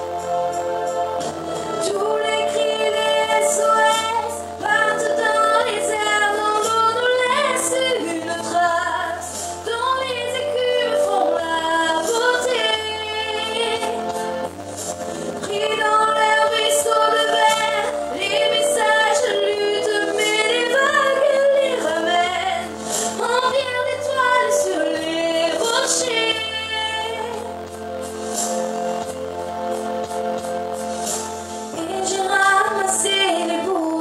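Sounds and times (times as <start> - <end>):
instrumental accompaniment: 0.0 - 34.0
woman singing into a microphone: 1.8 - 14.1, 15.4 - 27.4, 31.8 - 34.0.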